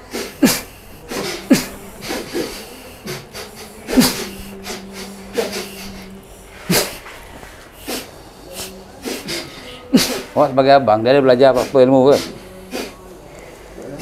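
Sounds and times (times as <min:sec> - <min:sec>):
person snorting bursts: 0:00.0 - 0:10.5.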